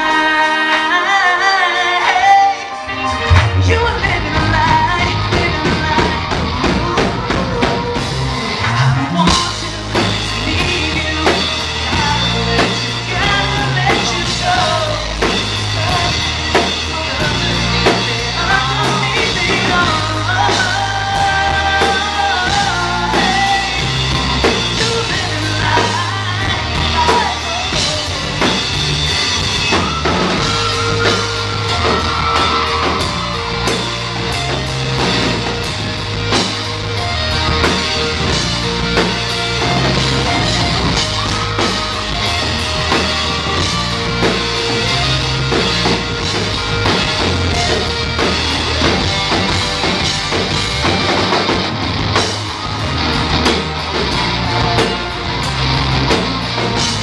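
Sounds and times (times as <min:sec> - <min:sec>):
man singing: 0:00.0 - 0:28.8
pop-rock band playing: 0:00.0 - 0:57.0.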